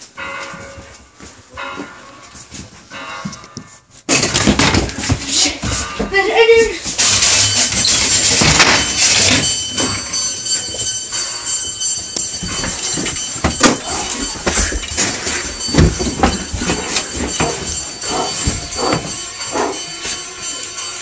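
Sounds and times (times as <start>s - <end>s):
knocks and thumps: 4.1s - 6.2s, 6.9s - 10.1s, 12.3s - 20.2s.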